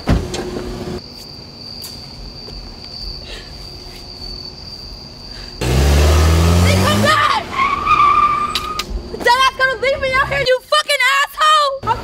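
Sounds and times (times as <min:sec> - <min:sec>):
crickets trilling: 0:01.0 - 0:05.6
car engine revving: 0:05.6 - 0:08.1.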